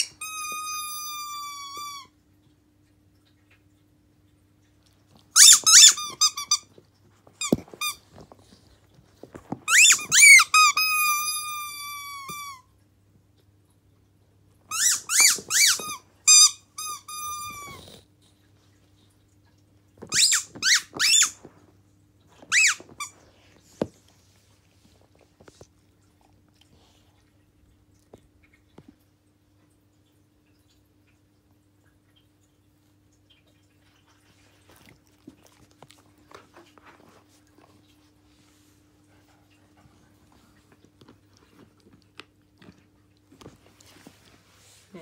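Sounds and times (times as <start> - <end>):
squeaky toy squeaking: 0.0 - 2.1, 5.4 - 6.6, 9.7 - 12.6, 14.7 - 17.8, 20.1 - 21.4, 22.5 - 23.1.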